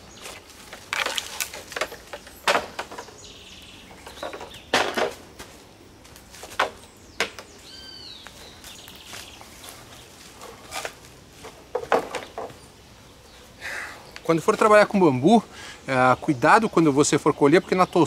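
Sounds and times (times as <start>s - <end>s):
knocks and clunks: 1.0s - 3.2s, 4.0s - 5.2s, 11.4s - 12.6s
bird chirping: 1.9s - 4.9s, 6.7s - 10.6s, 12.0s - 18.0s.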